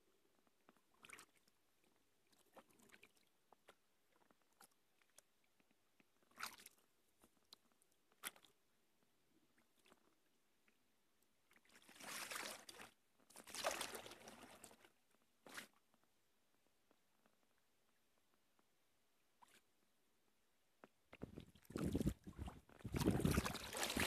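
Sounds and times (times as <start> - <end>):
paddle splashing through water: 11.9 - 14.8, 21.3 - 24.0.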